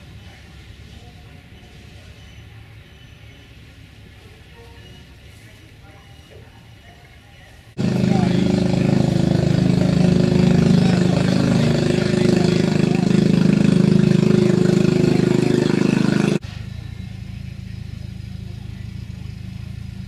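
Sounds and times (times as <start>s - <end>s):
quieter engine idling: 7.8s - 20.0s
tractor engine idling: 7.8s - 20.0s.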